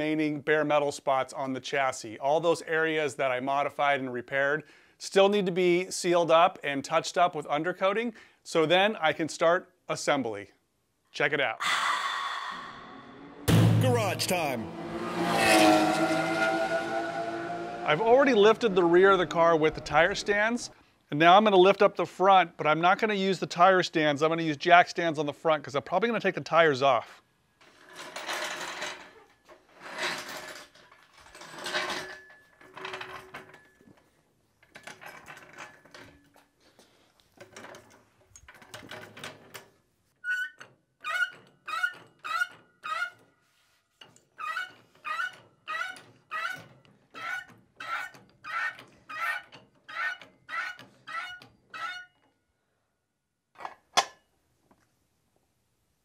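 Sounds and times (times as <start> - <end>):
sharp metal clank: 13.5 - 14.2
floor jack pumping with squeaks: 44.0 - 52.2.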